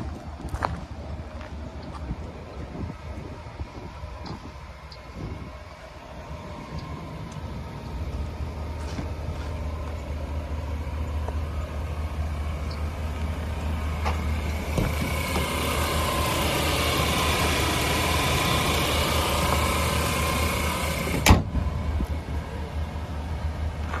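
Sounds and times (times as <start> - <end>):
truck engine idling: 0.0 - 24.0
car hood slamming: 21.2 - 21.6.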